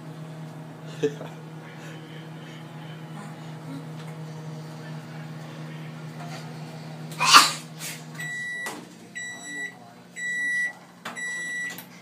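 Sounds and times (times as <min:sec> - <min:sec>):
microwave oven humming: 0:00.0 - 0:12.0
microwave beeps: 0:08.2 - 0:11.9.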